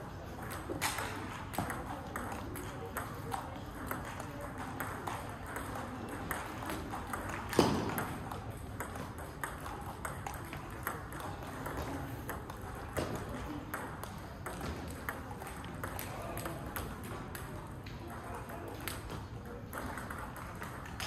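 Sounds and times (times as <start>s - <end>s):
table tennis ball knocking: 0.4s - 16.0s.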